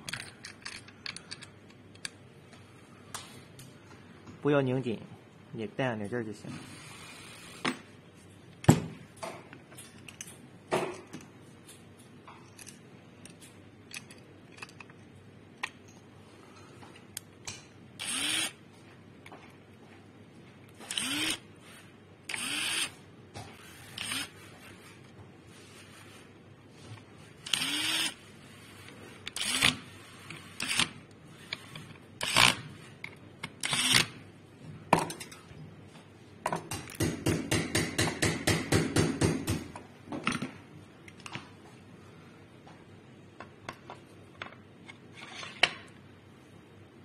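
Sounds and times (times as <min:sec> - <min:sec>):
powered screwdriver whining: 0:18.0 - 0:18.6, 0:20.8 - 0:21.4, 0:22.3 - 0:23.0, 0:23.6 - 0:24.4, 0:27.4 - 0:28.2, 0:29.3 - 0:32.6, 0:33.6 - 0:34.1.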